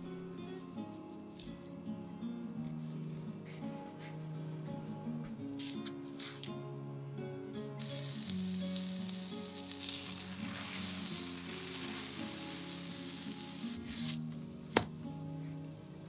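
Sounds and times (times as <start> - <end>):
butter sizzling in a frying pan: 7.8 - 13.8.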